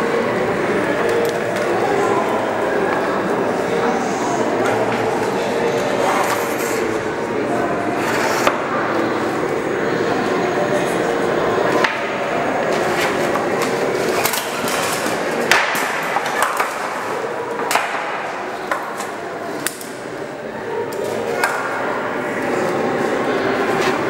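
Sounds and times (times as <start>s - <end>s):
wooden poles knocking and clacking: 13.0s - 16.9s.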